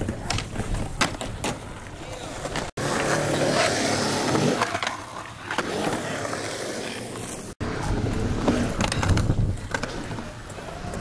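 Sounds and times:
skateboard clacks: 0:00.0 - 0:03.7, 0:07.1 - 0:11.0
skateboard wheels rolling on concrete: 0:00.0 - 0:11.0.

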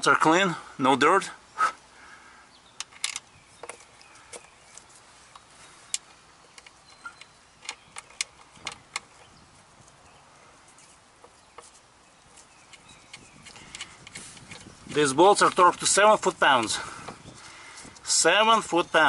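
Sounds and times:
small bolts clicking and tapping: 0:02.8 - 0:09.3, 0:12.3 - 0:16.1.

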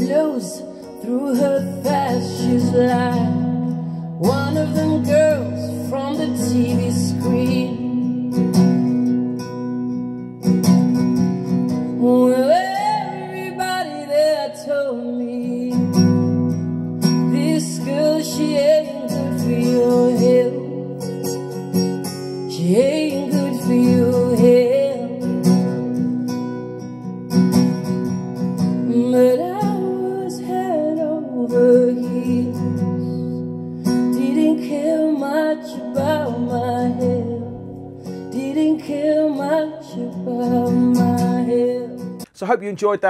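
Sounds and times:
person singing: 0:00.0 - 0:08.3, 0:11.9 - 0:16.0, 0:17.1 - 0:21.2, 0:22.5 - 0:25.4, 0:28.8 - 0:33.4, 0:34.0 - 0:42.3
strummed acoustic guitar: 0:00.0 - 0:42.4.

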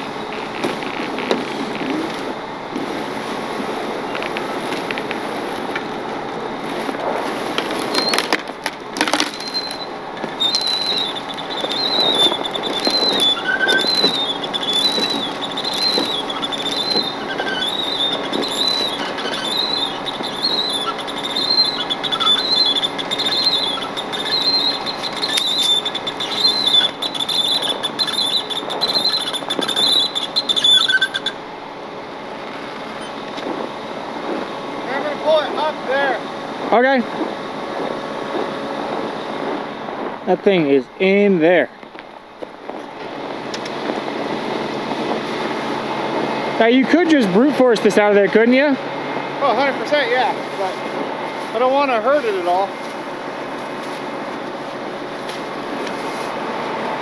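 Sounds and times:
high wavering squeal: 0:07.8 - 0:31.8
footsteps crunching in snow: 0:50.4 - 0:56.6.

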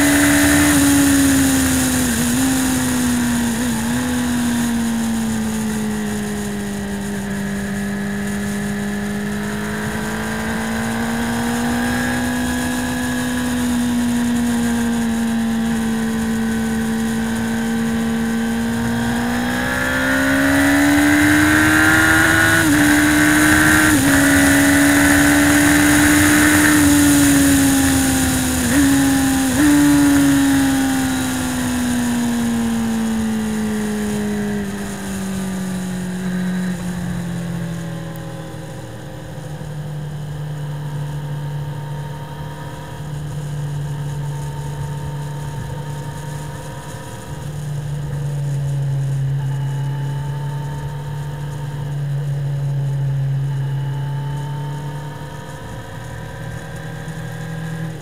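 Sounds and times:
motorcycle engine at high revs: 0:00.0 - 0:58.0.

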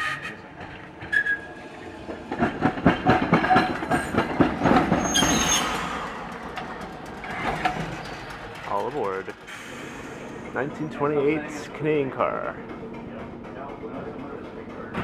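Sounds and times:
streetcar wheels clattering on rails: 0:00.0 - 0:15.0
high wheel squeal: 0:01.1 - 0:01.5, 0:04.9 - 0:06.2.

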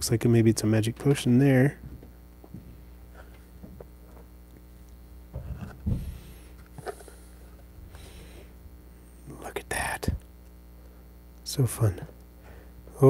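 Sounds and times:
steady low hum: 0:00.0 - 0:13.0
dull bumps: 0:05.3 - 0:06.2.

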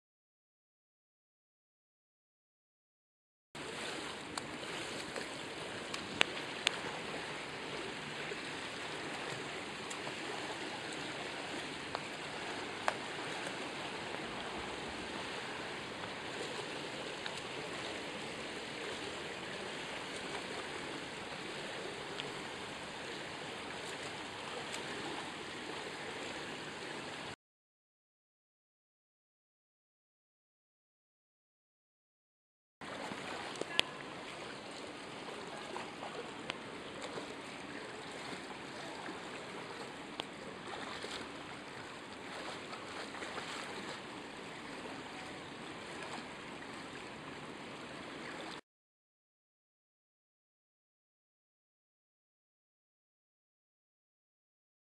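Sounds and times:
pool water splashing: 0:03.6 - 0:27.4, 0:32.8 - 0:48.6
sharp water slaps: 0:03.8 - 0:07.1, 0:09.0 - 0:14.3.

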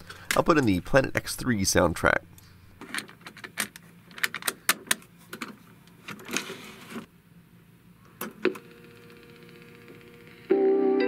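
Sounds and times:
scraping rustle: 0:06.0 - 0:07.1.

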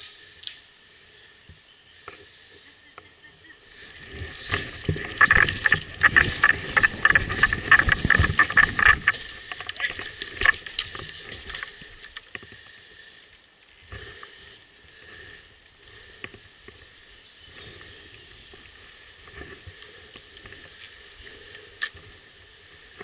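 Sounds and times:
sharp clicks: 0:00.0 - 0:00.7
clothing and gear rustling: 0:03.8 - 0:12.3.

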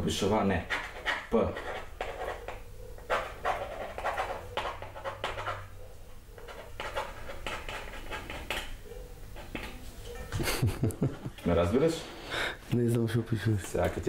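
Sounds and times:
pen scratching on paper: 0:00.6 - 0:05.7, 0:06.4 - 0:08.7.

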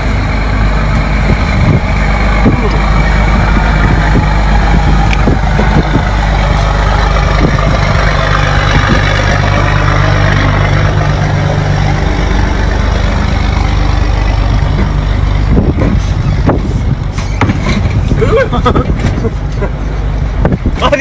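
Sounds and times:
large engine idling: 0:00.0 - 0:21.0.

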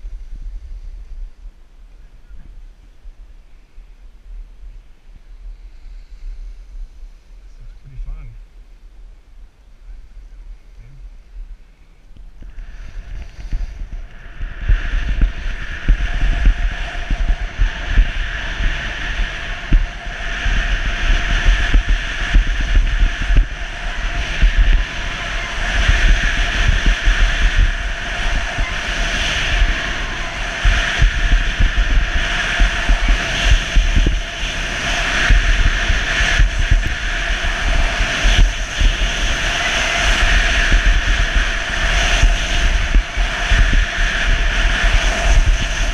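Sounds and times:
wind buffeting microphone: 0:00.0 - 0:45.9
skis scraping on snow: 0:12.5 - 0:45.9.

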